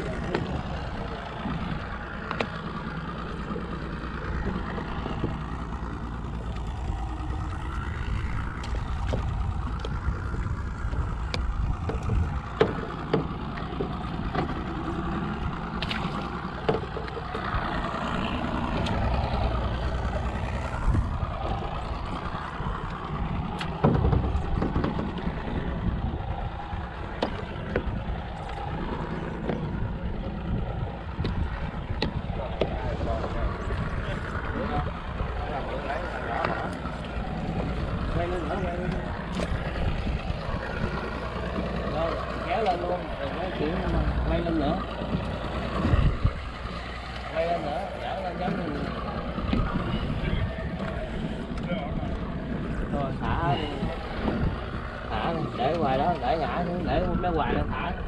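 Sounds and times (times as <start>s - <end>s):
boat engine rumble: 0.0s - 58.0s
water and wind noise: 0.0s - 58.0s
light clicks and taps: 2.2s - 2.6s.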